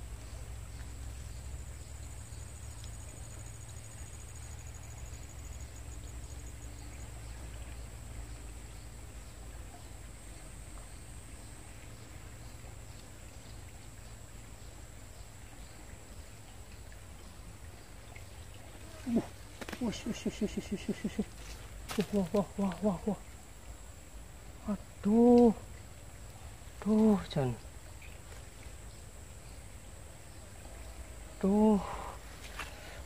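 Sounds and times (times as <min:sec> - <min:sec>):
fast pulsing insect trill: 0:00.0 - 0:09.5, 0:18.8 - 0:28.2
faint scattered ticks: 0:00.0 - 0:33.0
low steady rumble: 0:00.0 - 0:33.0.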